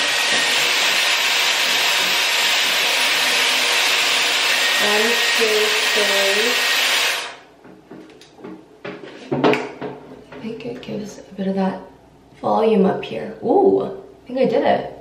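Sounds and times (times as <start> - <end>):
hair styler blowing air: 0.0 - 7.4.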